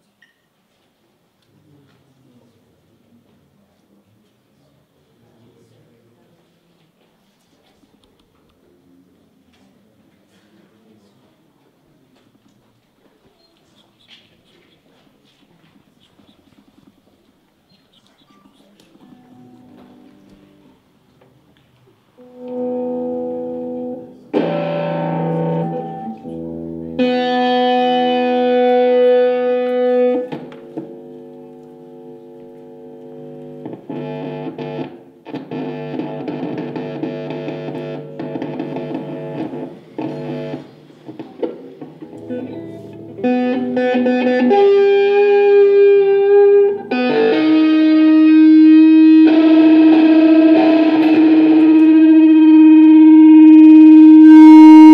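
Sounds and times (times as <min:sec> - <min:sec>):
instrumental music of held chords: 0:42.0 - 0:54.9.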